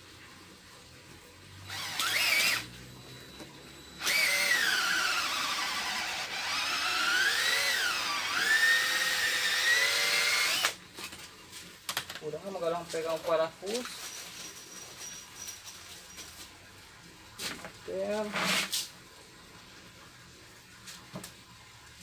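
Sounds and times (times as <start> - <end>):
electric drill boring through rubber: 1.7 - 2.7, 4.0 - 10.8.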